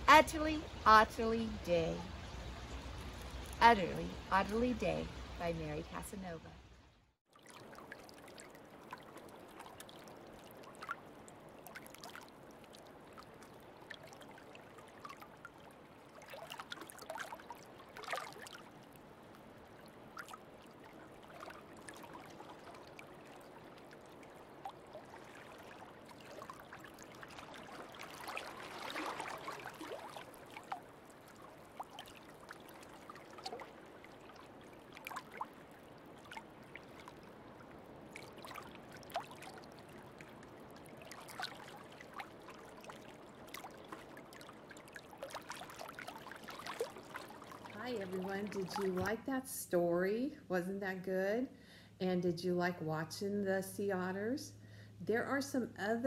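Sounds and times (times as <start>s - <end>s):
sea water lapping: 0.0s - 6.4s, 7.3s - 49.3s
small splashes: 7.3s - 49.2s.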